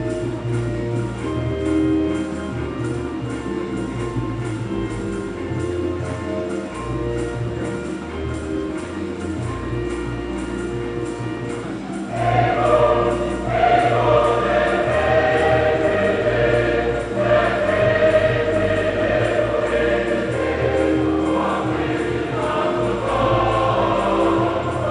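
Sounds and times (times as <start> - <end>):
instrumental accompaniment: 0.0 - 24.9
choir singing a hymn: 12.0 - 24.9.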